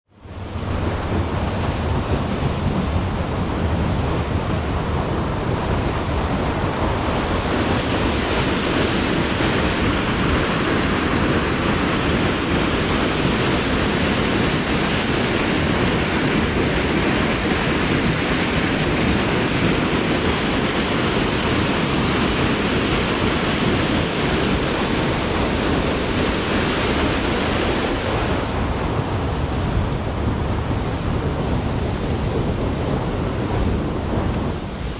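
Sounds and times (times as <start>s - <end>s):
wind rumbling on microphone: 0.1s - 34.9s
waterfall and creek rushing: 6.5s - 28.6s.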